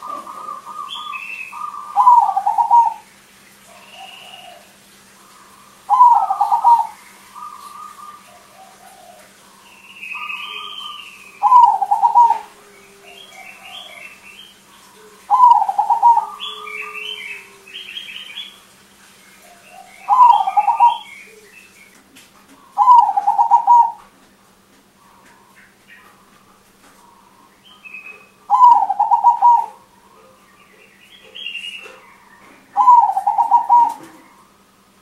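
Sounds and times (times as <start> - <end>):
dove stuttering coos: 0.0 - 3.1, 3.7 - 18.5, 19.4 - 21.5, 22.6 - 24.2, 28.2 - 30.2, 31.4 - 34.6
small birds chirping: 0.0 - 34.6.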